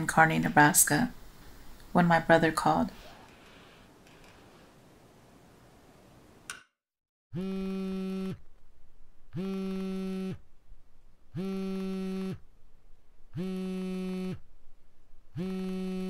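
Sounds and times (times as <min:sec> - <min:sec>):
phone buzzing: 0:07.4 - 0:08.4, 0:09.3 - 0:10.4, 0:11.4 - 0:12.4, 0:13.3 - 0:14.4, 0:15.4 - 0:16.0.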